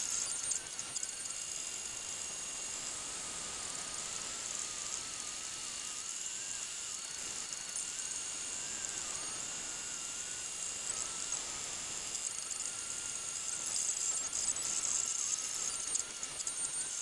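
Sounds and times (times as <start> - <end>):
faint wavering whine: 0.0 - 17.0.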